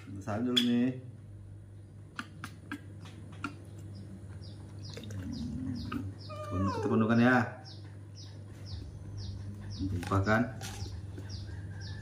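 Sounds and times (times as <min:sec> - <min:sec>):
baby monkey squeaking: 0:05.8 - 0:10.0.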